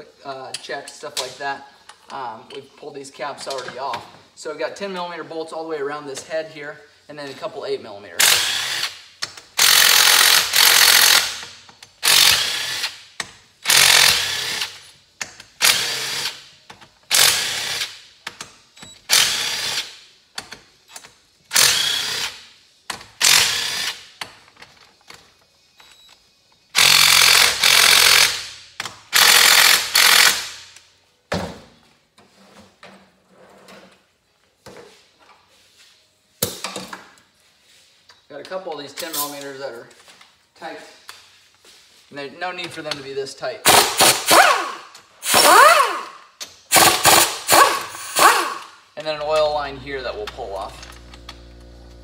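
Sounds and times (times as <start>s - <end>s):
impact driver hammering: 43.7s - 46.1s, 46.7s - 48.7s.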